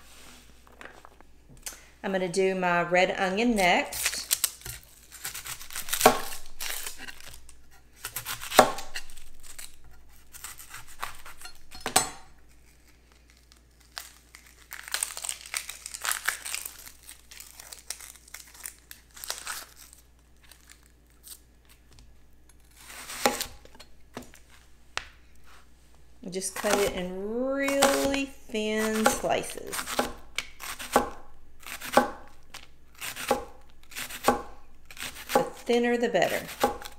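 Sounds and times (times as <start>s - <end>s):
onion skin crinkling: 3.5s - 36.9s
knife cutting onion on board: 3.6s - 12.3s, 22.6s - 24.4s, 26.5s - 36.9s.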